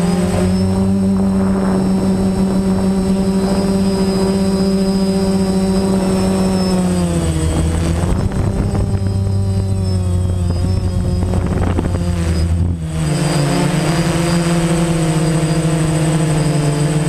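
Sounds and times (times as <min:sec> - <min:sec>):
drone propellers whirring: 0:00.0 - 0:17.0.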